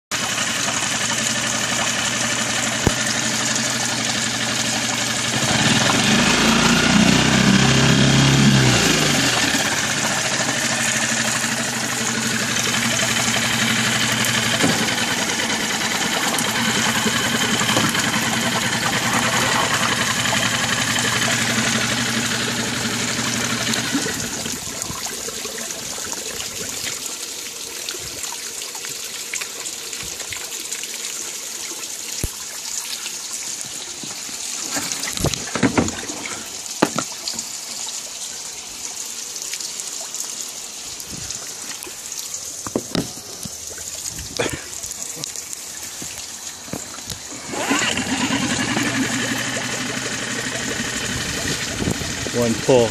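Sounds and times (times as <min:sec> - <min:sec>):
outboard motor running: 0:00.1 - 0:27.3, 0:34.0 - 0:37.4, 0:41.1 - 0:52.9
water trickling and sloshing: 0:00.2 - 0:52.9
knocks: 0:36.8 - 0:37.1.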